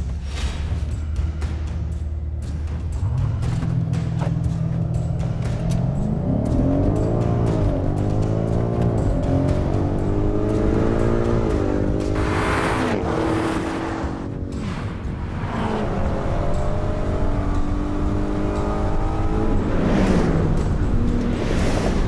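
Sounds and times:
background music: 0.0s - 22.0s
cars accelerating hard: 3.0s - 22.0s
cars whooshing past: 10.7s - 17.4s.

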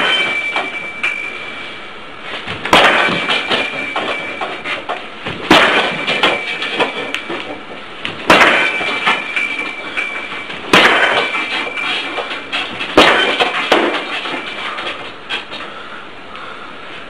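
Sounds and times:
short ring: 0.0s - 2.0s, 2.7s - 4.9s, 5.6s - 7.6s, 8.3s - 14.8s
kicks striking target: 2.4s - 7.4s, 8.1s - 9.7s, 10.6s - 11.8s, 12.4s - 14.4s.

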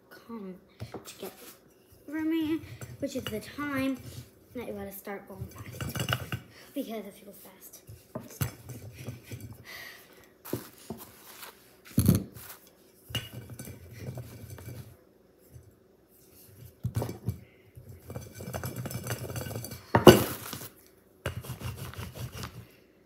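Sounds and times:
dishes and utensils clinking: 5.4s - 6.5s, 13.1s - 14.9s, 18.0s - 20.5s.

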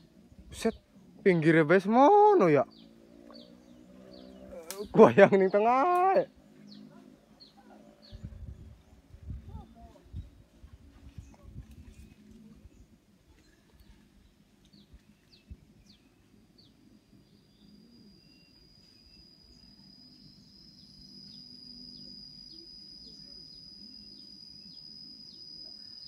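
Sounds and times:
high insect whine: 16.5s - 26.0s.

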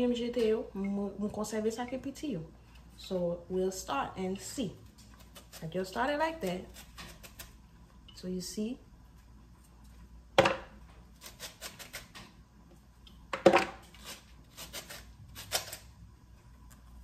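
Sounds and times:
knife slicing cabbage: 5.0s - 7.6s, 11.1s - 12.2s, 13.8s - 15.9s.

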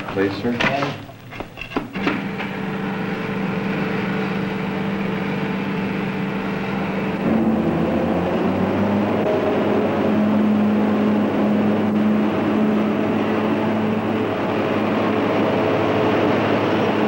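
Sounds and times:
machinery hum: 0.0s - 17.0s
rushing noise: 3.4s - 17.0s.

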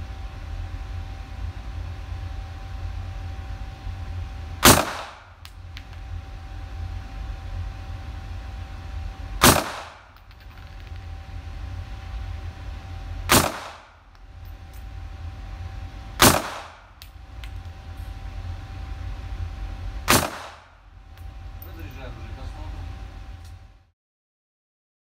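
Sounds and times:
pistol shots with echo: 4.6s - 5.3s, 9.4s - 10.1s, 13.3s - 13.9s, 16.2s - 16.8s, 20.1s - 20.7s.

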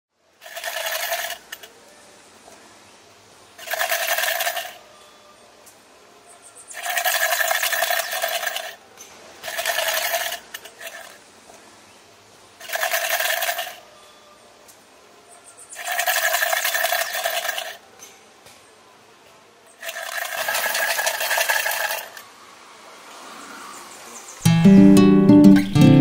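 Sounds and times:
rapid rattling bursts: 0.4s - 1.7s, 3.6s - 4.8s, 6.7s - 8.8s, 9.4s - 11.2s, 12.6s - 13.8s, 15.7s - 17.8s, 19.8s - 22.2s.

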